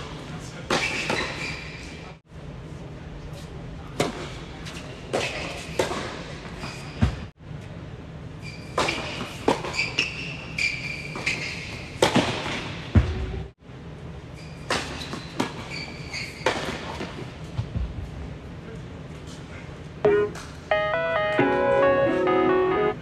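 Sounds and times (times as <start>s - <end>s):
sneakers squeaking on court: 8.4s - 12.0s, 14.4s - 17.0s.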